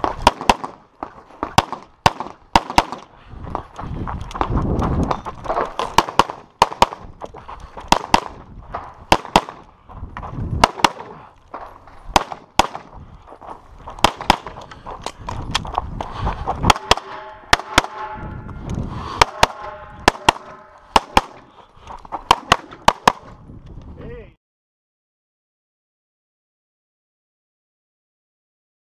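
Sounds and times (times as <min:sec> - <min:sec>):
low thuds of footsteps: 0:00.0 - 0:24.0
pistol shots: 0:00.2 - 0:00.8, 0:01.5 - 0:03.1, 0:06.0 - 0:07.0, 0:09.1 - 0:09.7, 0:10.6 - 0:11.2, 0:12.1 - 0:12.9, 0:14.0 - 0:14.6, 0:16.7 - 0:18.2, 0:19.2 - 0:21.5, 0:22.3 - 0:23.3.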